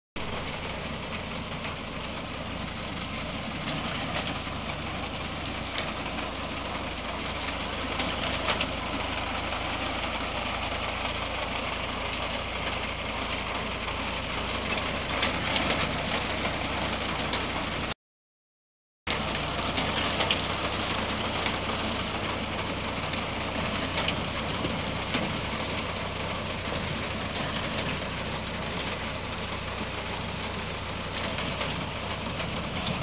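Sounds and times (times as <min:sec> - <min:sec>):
tractor engine running: 0:00.2 - 0:18.0, 0:19.1 - 0:33.0
sharp clicks and clatter: 0:03.4 - 0:17.9.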